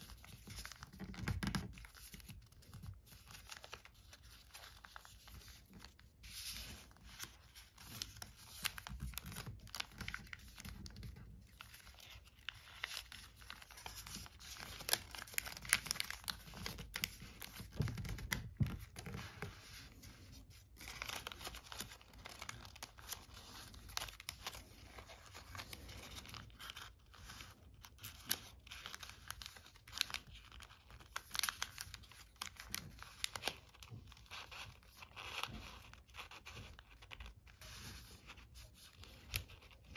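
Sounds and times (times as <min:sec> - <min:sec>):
paper rustling and crinkling: 0:00.0 - 0:39.9.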